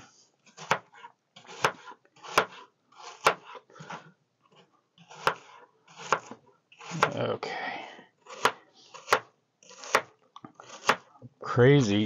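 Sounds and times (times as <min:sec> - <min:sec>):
knife crunching through apple: 0:08.2 - 0:11.1.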